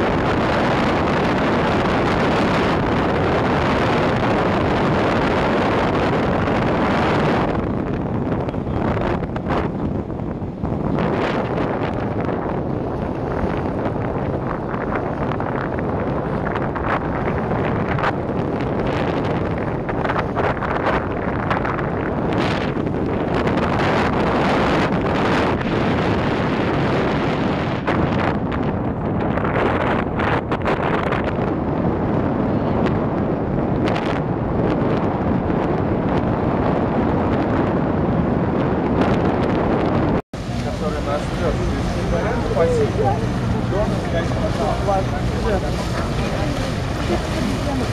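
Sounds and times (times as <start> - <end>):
wind buffeting microphone: 0.0 - 47.9
river water splashing: 40.4 - 47.9.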